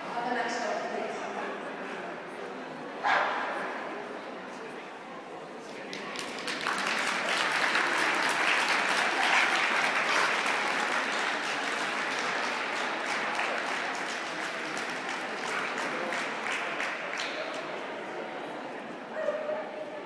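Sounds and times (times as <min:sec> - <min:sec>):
spectators applauding: 0:05.7 - 0:17.9.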